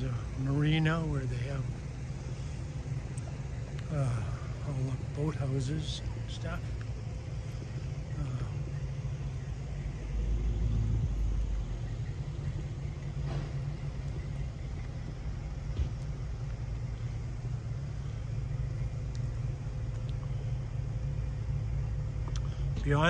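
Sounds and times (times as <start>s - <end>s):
faint constant hum: 0.0s - 23.0s
vehicle engine idling: 0.0s - 23.0s
faint clicks: 19.0s - 20.4s.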